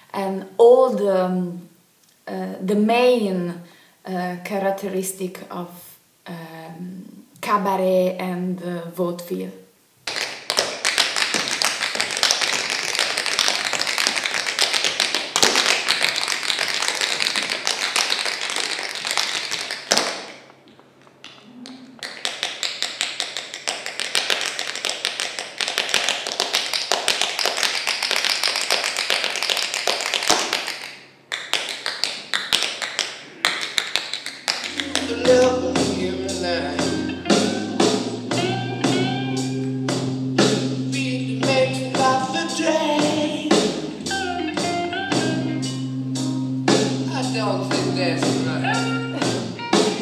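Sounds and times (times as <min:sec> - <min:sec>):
tap shoes on stage floor: 0:10.0 - 0:20.4, 0:22.0 - 0:35.2.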